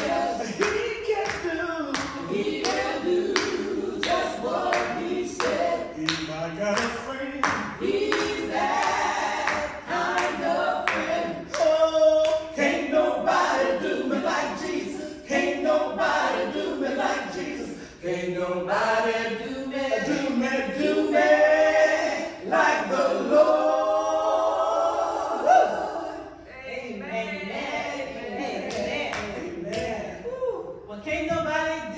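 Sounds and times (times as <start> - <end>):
hand claps: 0.0 - 12.5, 28.7 - 30.0
group singing a cappella: 0.0 - 30.3.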